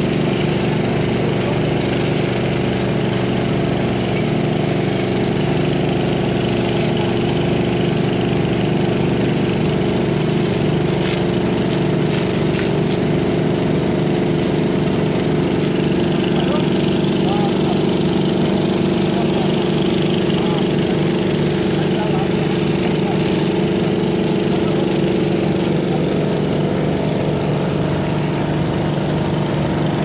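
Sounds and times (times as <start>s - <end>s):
small engine running steadily: 0.0s - 30.0s.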